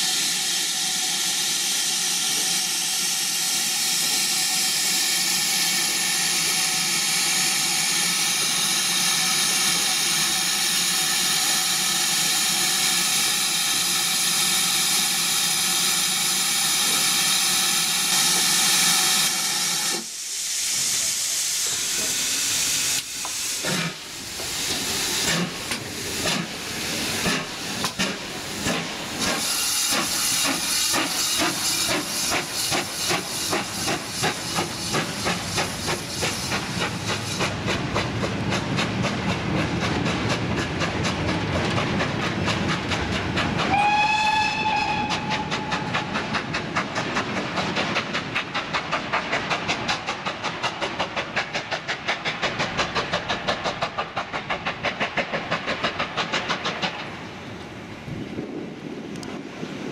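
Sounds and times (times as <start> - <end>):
short steam puffs: 0.0 - 37.7
steam locomotive hissing: 0.0 - 59.9.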